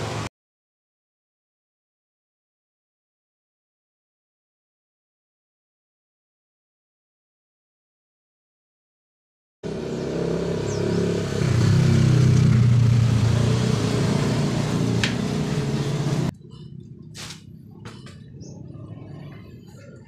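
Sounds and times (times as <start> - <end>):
engine humming: 9.6 - 20.0.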